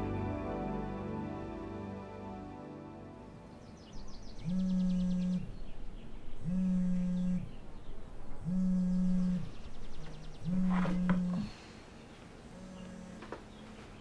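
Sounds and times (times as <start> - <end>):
phone vibrating on table: 4.4 - 5.5, 6.4 - 7.5, 8.5 - 9.5, 10.5 - 11.5.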